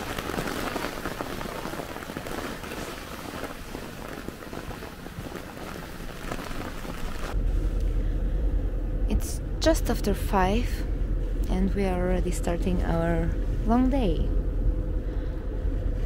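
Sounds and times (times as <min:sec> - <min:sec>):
rain falling: 0:00.0 - 0:07.4
low rumble: 0:00.0 - 0:16.0.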